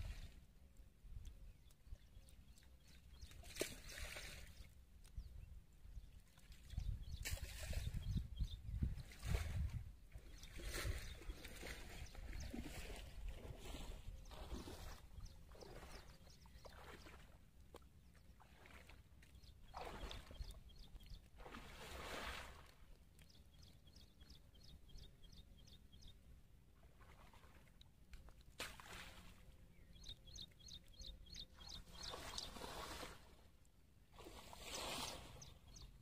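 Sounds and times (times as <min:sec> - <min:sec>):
water swishes: 0:00.0 - 0:05.2, 0:05.9 - 0:25.8, 0:26.6 - 0:36.0
shallow water sloshing: 0:02.4 - 0:04.8, 0:06.1 - 0:24.0, 0:26.7 - 0:36.0.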